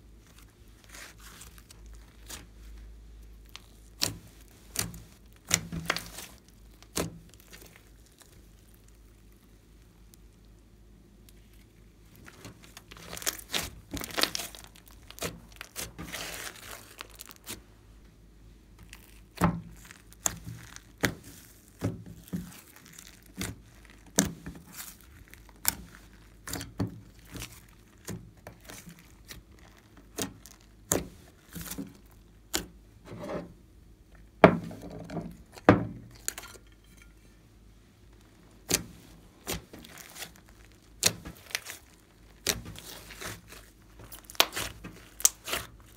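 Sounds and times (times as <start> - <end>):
slime squishing and popping: 3.4 - 9.4, 11.2 - 17.6, 18.8 - 32.8, 38.6 - 45.9.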